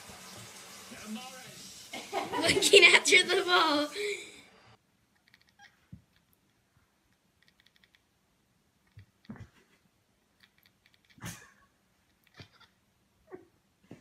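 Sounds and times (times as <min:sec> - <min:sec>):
cat chattering: 0:05.2 - 0:05.8, 0:07.4 - 0:08.1, 0:08.8 - 0:13.4.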